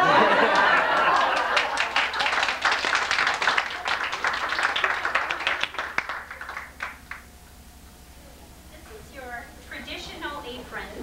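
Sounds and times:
people applauding: 0.0s - 7.3s.

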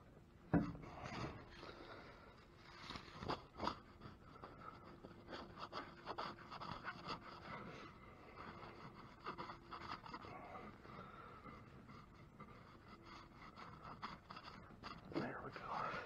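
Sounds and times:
metal part scraping and knocking: 0.5s - 1.4s.

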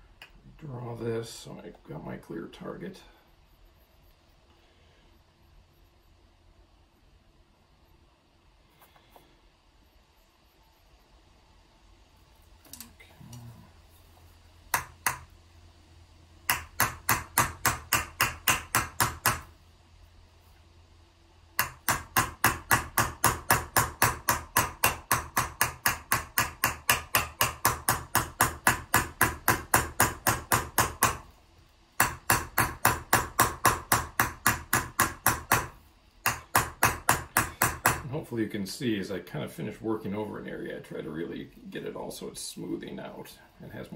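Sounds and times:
hammer striking copper vessel: 14.7s - 15.3s, 16.5s - 19.5s, 21.6s - 31.2s, 32.0s - 38.1s.

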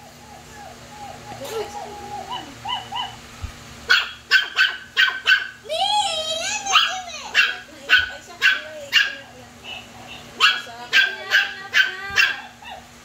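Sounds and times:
toy dog yapping: 6.6s - 9.2s.

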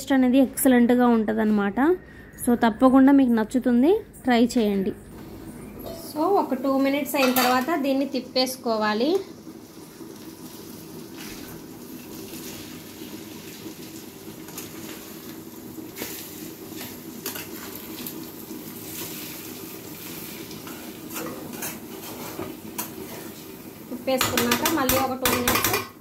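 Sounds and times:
frying sizzle: 5.2s - 26.0s.

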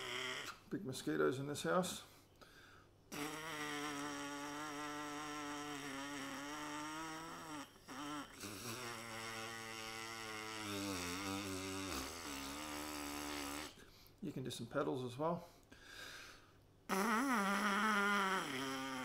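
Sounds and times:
trumpet mouthpiece buzzing: 3.1s - 13.8s, 16.9s - 19.0s.

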